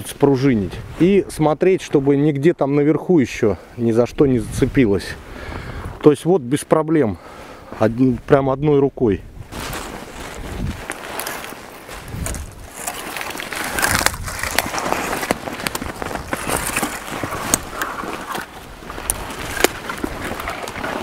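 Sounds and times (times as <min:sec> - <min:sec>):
branches rustling and scraping: 0:09.4 - 0:21.0
twigs cracking and snapping: 0:09.5 - 0:21.0.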